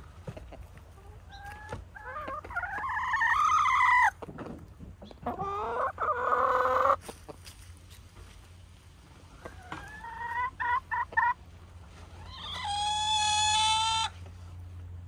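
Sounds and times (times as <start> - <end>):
hens calling: 0.0 - 4.4, 5.0 - 7.6, 9.1 - 14.4.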